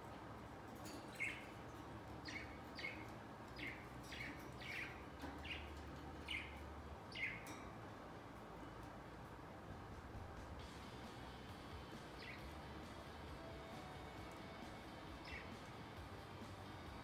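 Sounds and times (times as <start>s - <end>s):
budgerigars chirping: 1.1s - 1.6s, 2.2s - 7.4s, 12.2s - 12.6s, 15.2s - 15.6s.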